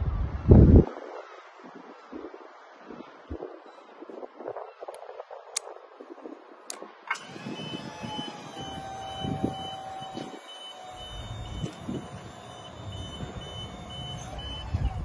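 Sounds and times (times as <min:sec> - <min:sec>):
lifting machinery motor hum: 0:07.1 - 0:15.0
high warning beep: 0:07.5 - 0:15.0.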